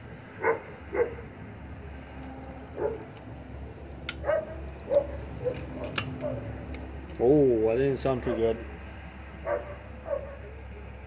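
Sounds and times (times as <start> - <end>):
sharp clicks: 4.0 - 4.2.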